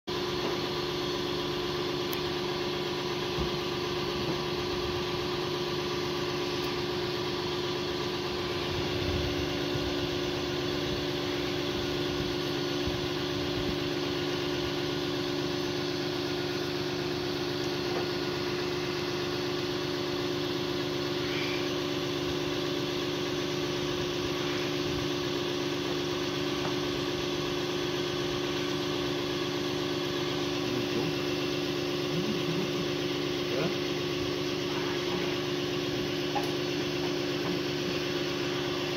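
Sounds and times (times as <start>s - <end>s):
truck engine idling: 0.1s - 38.9s.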